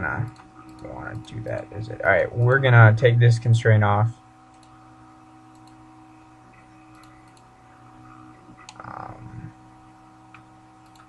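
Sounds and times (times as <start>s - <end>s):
faint electrical hum: 0.0s - 11.0s
computer mouse clicks: 0.3s - 1.4s, 4.5s - 4.8s, 5.5s - 5.8s, 6.6s - 7.5s, 8.5s - 9.1s, 10.3s - 11.0s.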